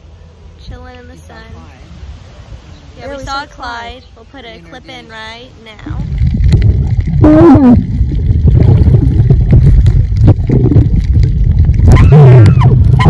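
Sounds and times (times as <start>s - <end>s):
low underwater rumble: 5.8s - 13.0s.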